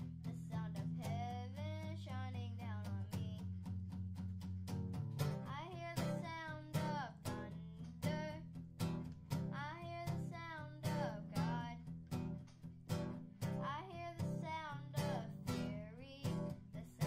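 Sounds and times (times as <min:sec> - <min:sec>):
acoustic guitar strumming: 0:00.0 - 0:17.0
boy singing: 0:00.2 - 0:03.4, 0:05.4 - 0:08.4, 0:09.5 - 0:11.9, 0:13.5 - 0:17.0.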